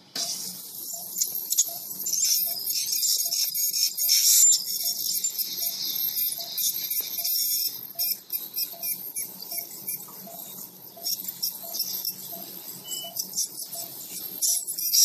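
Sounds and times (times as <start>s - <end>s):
faint short beep: 12.8s - 13.2s.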